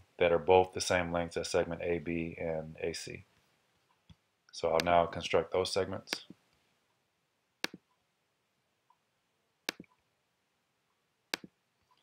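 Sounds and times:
computer mouse clicking: 0:07.6 - 0:07.9, 0:09.7 - 0:10.0, 0:11.3 - 0:11.5.

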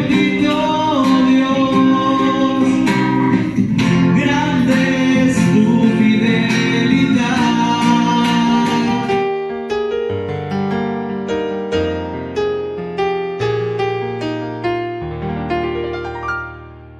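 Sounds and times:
person singing: 0:00.0 - 0:09.3
acoustic guitar strumming: 0:00.0 - 0:09.4.

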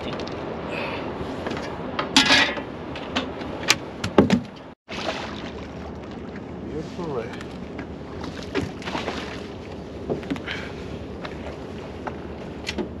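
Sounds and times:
knocks against fiberglass boat: 0:03.0 - 0:04.6.

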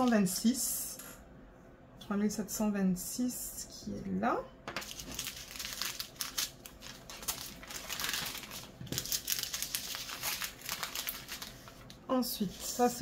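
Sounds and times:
plastic bags crinkling: 0:04.8 - 0:12.0.

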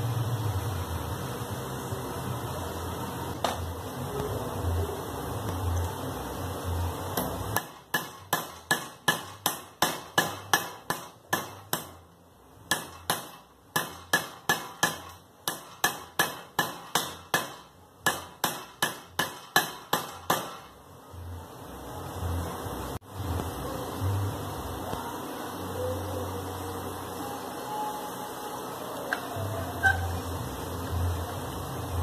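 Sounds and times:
hammer striking metal strip: 0:07.2 - 0:12.0, 0:12.7 - 0:20.7.

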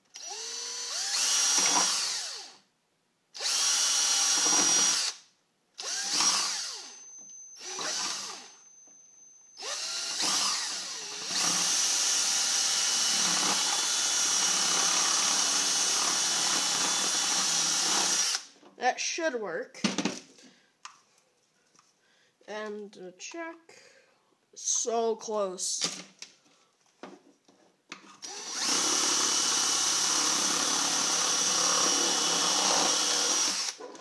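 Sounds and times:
power drill boring through plastic: 0:00.1 - 0:02.6, 0:03.4 - 0:18.5, 0:28.2 - 0:34.0.

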